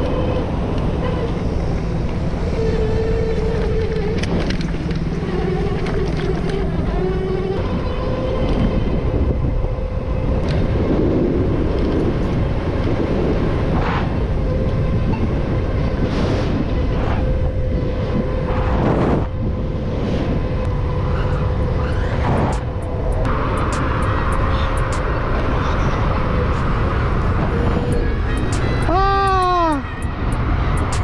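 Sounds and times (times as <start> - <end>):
electric motor whine: 0.0 - 11.0
loud wind: 0.0 - 31.0
road rumble: 0.0 - 31.0.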